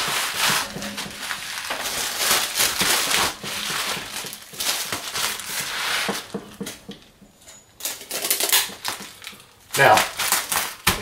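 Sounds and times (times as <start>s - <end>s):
bubble wrap crinkling: 0.0s - 6.8s, 7.8s - 11.0s.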